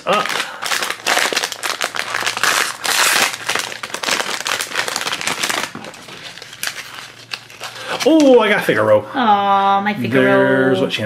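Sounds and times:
plastic wrapper crinkling: 0.0 - 8.7.

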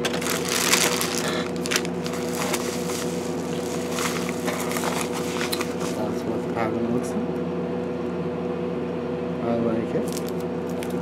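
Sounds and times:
plastic packaging crinkling: 0.0 - 6.2, 10.0 - 11.0
steady background hum: 0.0 - 11.0.

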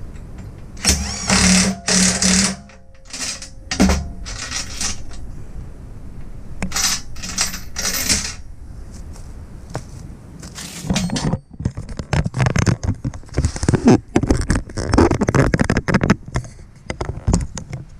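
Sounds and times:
impact wrench hammering: 0.8 - 4.4
hand wrench clicking on bolts: 0.8 - 5.2.

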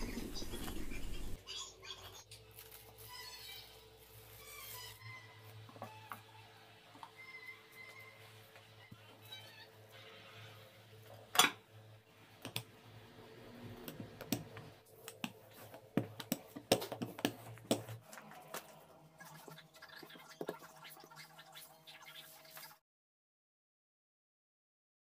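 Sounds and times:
plastic film peeling: 2.4 - 5.0
rolling pin rolling dough: 12.4 - 21.1.

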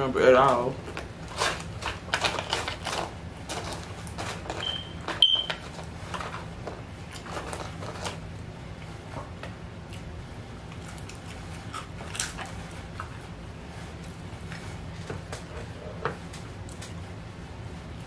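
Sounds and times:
low steady hum: 0.0 - 18.0
fries rustling in paperboard carton: 0.5 - 8.3
chewing: 9.9 - 13.3.

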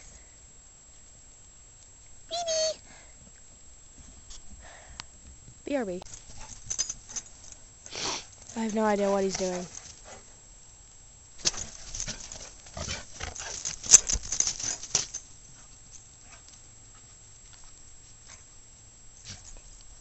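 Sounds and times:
dog paws crunching in snow: 6.1 - 10.4, 11.4 - 20.0.

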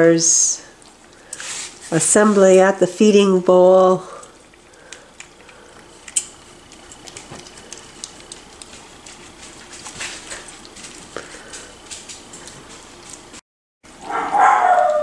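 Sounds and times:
puppies eating kibble from metal bowl: 3.7 - 13.3.

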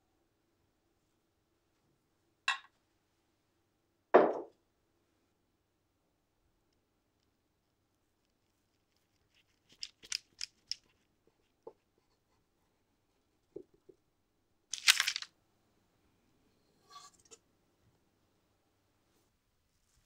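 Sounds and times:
parchment paper crackling: 8.3 - 11.6, 14.7 - 15.3.

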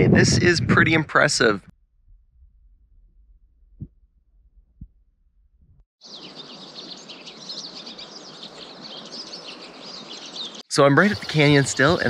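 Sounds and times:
low wind-like rumble: 0.0 - 5.8
finch flock chirping: 6.0 - 12.0.

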